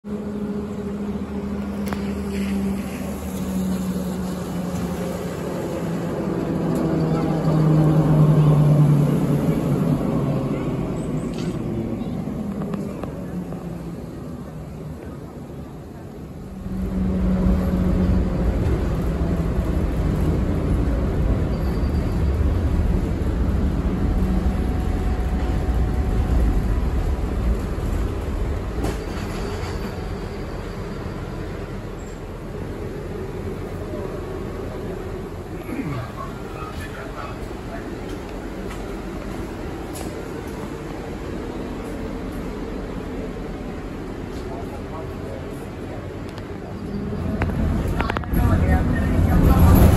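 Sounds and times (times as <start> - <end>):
tram humming and rumbling: 0.0 - 49.9.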